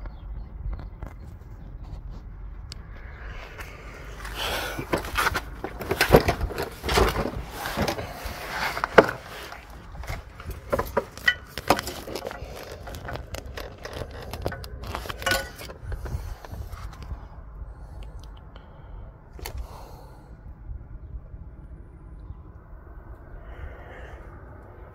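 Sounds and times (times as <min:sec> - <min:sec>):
phone handling rustling: 0:04.2 - 0:17.1.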